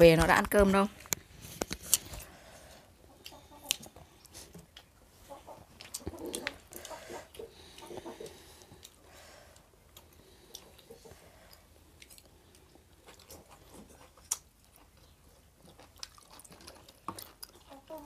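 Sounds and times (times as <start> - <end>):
people chewing: 1.0 - 18.0.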